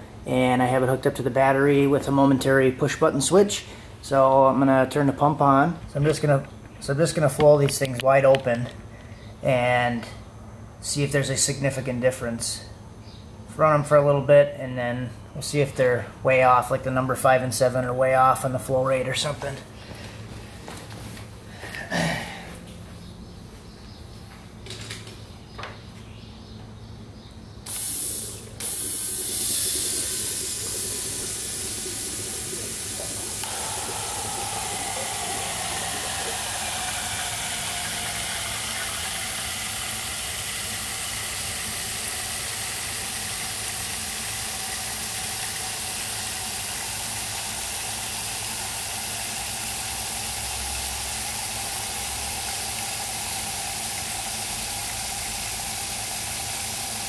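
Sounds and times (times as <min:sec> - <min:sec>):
electric fuel pump: 0:00.0 - 0:10.2, 0:27.6 - 0:57.0
fuel spraying hiss: 0:27.7 - 0:57.0.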